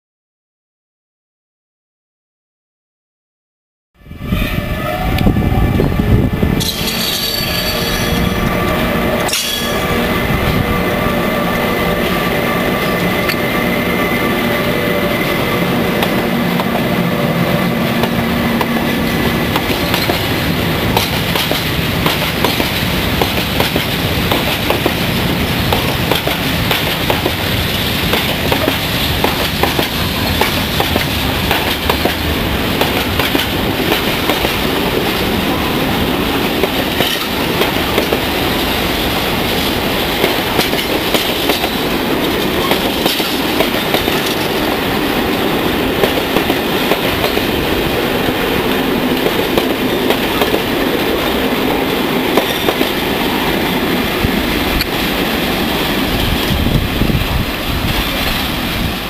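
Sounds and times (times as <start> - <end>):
electric locomotive whine: 4.0 - 59.0
freight train rumbling: 4.0 - 59.0.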